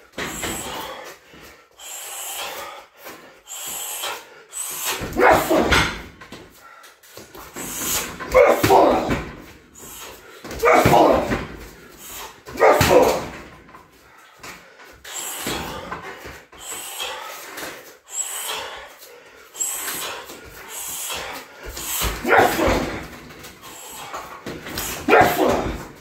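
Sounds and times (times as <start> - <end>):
kicks hitting punching bag: 7.6 - 9.5, 10.5 - 11.7, 12.5 - 13.5.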